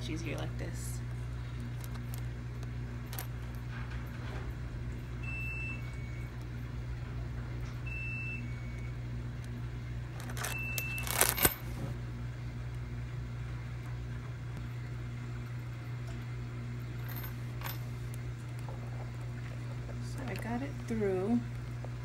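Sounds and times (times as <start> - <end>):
steady low hum: 0.0 - 22.0
purse clicks and rustles: 1.7 - 2.3, 10.2 - 11.8.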